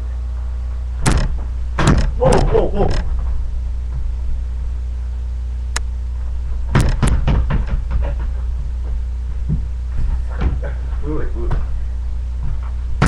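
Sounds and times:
steady low hum: 0.0 - 13.0
knocks and thuds: 1.0 - 4.2, 6.5 - 10.8, 12.4 - 13.0.

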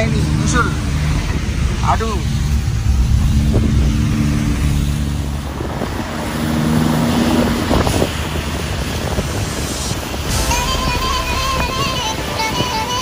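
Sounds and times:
truck engine droning: 0.0 - 13.0
tyres hissing on wet road: 0.0 - 13.0.

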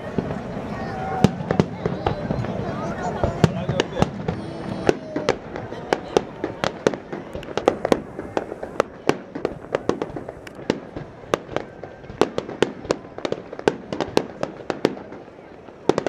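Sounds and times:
fireworks popping and banging: 0.0 - 16.0.

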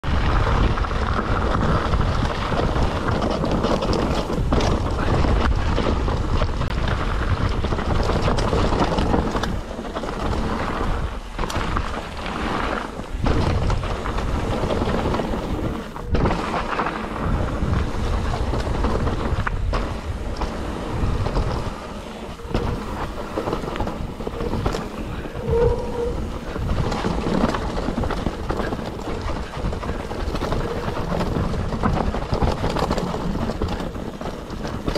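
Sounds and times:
bike tyres on dirt: 0.0 - 34.9
wind rumbling on microphone: 0.0 - 34.9
bike knocking over bumps: 0.3 - 25.6
brief squeal: 25.3 - 26.2.

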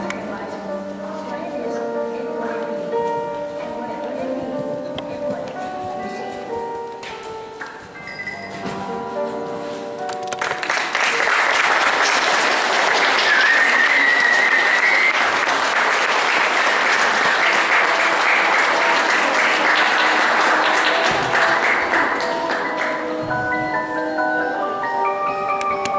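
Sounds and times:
audience applauding and cheering: 10.2 - 23.2
freestyle music: 17.3 - 25.9.

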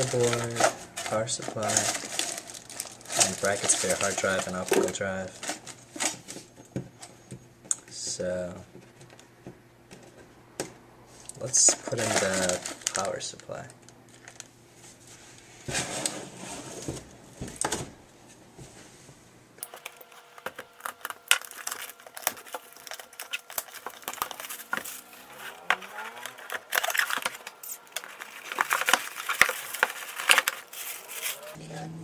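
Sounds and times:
cardboard packaging rustling: 0.0 - 6.5, 11.4 - 17.1, 19.6 - 31.6.

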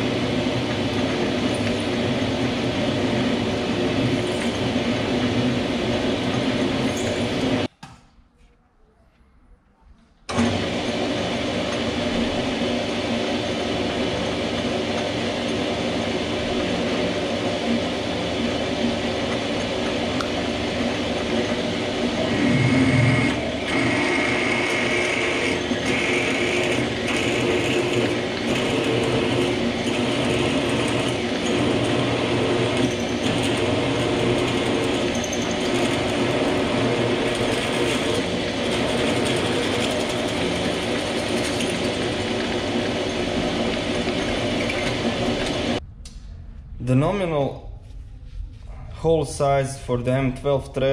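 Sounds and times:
metal lathe motor whirring: 12.9 - 45.8
drill cutting metal workpiece: 22.0 - 45.8
high whine: 43.0 - 50.9.

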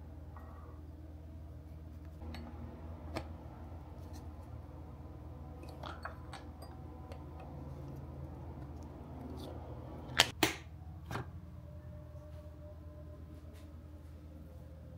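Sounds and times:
steady low hum: 0.0 - 14.9
cups and lids clicking: 5.6 - 7.6.

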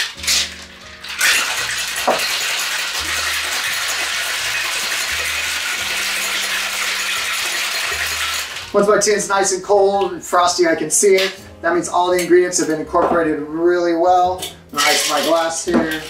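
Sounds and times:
ice rattling in cocktail shaker: 0.0 - 8.8, 14.8 - 16.0.

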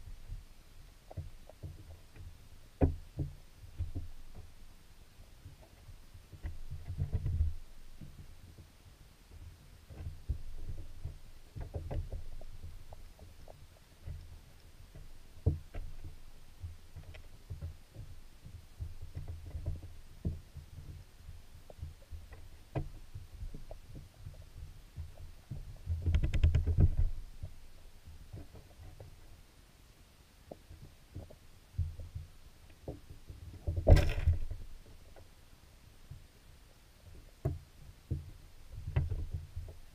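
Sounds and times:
clicks and knocks: 33.6 - 35.0.

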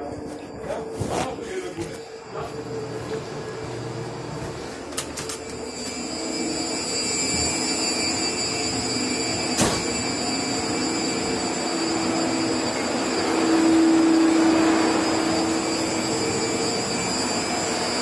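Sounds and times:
high-pitched whines: 0.0 - 18.0
machinery and ventilation rush: 0.0 - 18.0.

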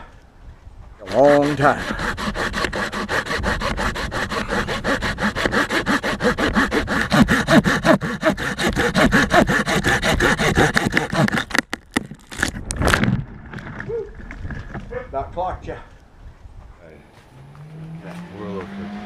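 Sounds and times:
hand saw cutting wood: 1.0 - 11.6
wood cracking: 1.8 - 15.0.

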